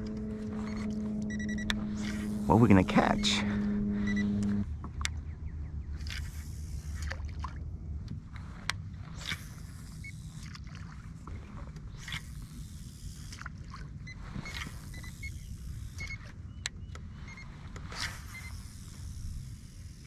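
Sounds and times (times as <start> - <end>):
low rumble: 0.0 - 9.2
water swishing: 5.9 - 16.4.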